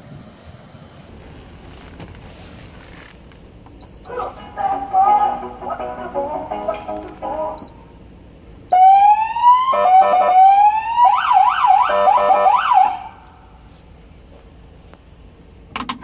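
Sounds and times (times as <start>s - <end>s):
police siren: 8.7s - 13.2s.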